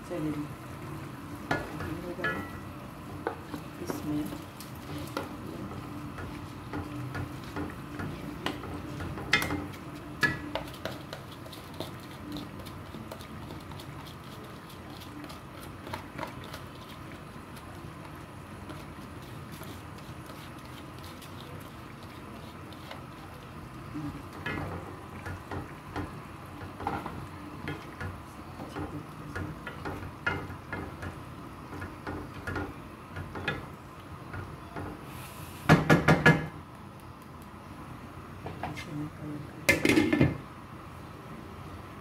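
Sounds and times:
spatula stirring and scraping pot: 1.4s - 33.8s.

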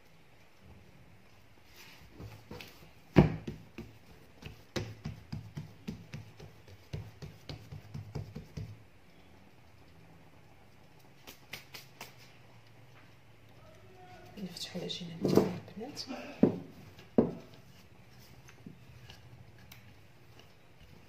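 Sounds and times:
hands patting dough: 1.8s - 8.9s, 11.1s - 12.4s
hands thumping dough: 2.2s - 8.8s.

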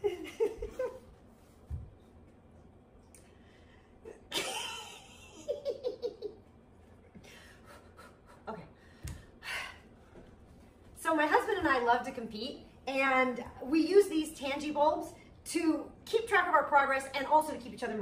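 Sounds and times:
woman laughing: 0.0s - 1.1s, 4.1s - 6.4s.

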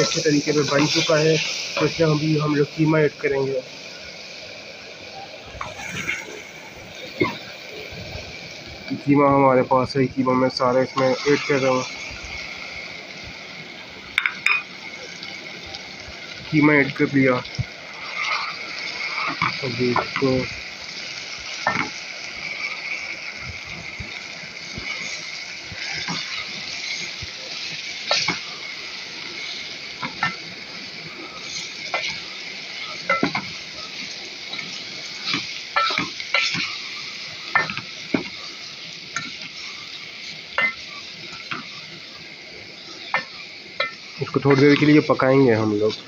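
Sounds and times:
meat sizzling in a pot: 0.0s - 46.0s.

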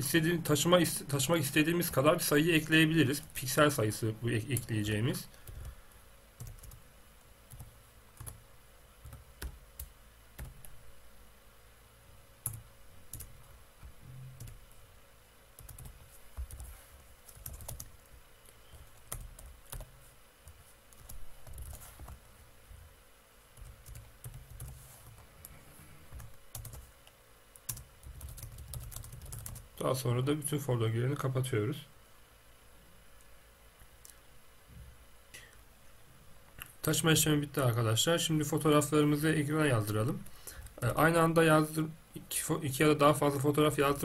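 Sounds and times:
faint steady hum: 0.0s - 44.0s
keyboard typing: 15.6s - 16.7s, 17.3s - 17.9s, 20.9s - 22.2s, 23.6s - 25.2s, 26.1s - 26.9s, 27.6s - 29.6s.

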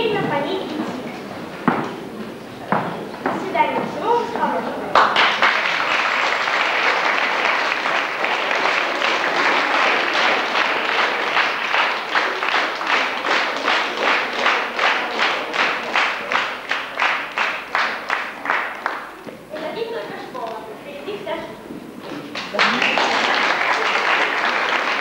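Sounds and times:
audience applauding: 4.9s - 19.2s, 22.2s - 25.0s.

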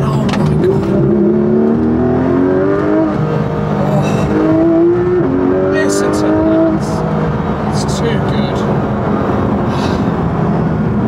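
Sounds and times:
car engine revving from inside: 0.4s - 7.7s.

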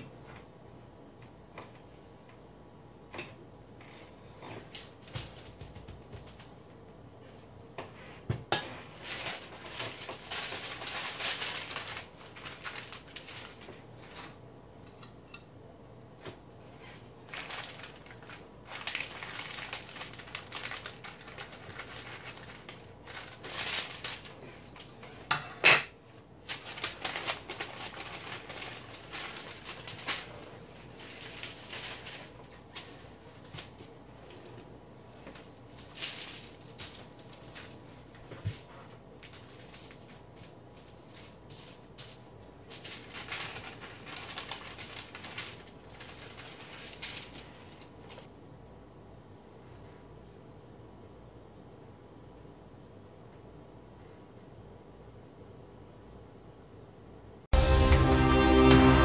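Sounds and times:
paper rustling and crinkling: 3.9s - 6.6s, 7.8s - 14.4s, 16.2s - 25.3s, 26.4s - 48.3s.

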